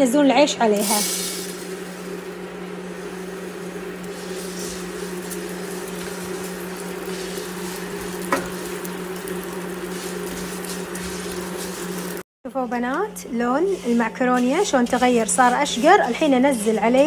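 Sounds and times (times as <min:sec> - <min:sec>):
pasta sizzling in a pan: 0:00.8 - 0:12.3
spatula scraping a pan: 0:03.0 - 0:12.2, 0:12.9 - 0:17.0
spatula tapping a pan: 0:08.2 - 0:08.6.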